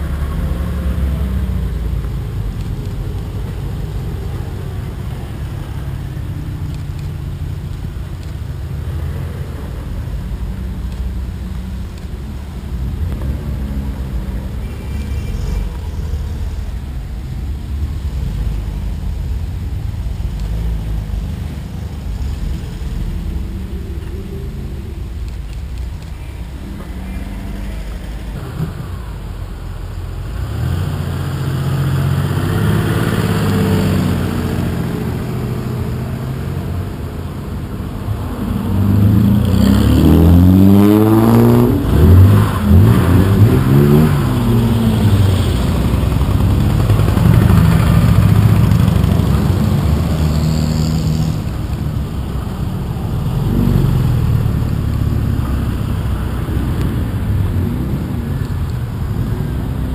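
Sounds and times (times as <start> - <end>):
cars driving past: 0.0 - 59.9
car engine revving: 20.4 - 59.9.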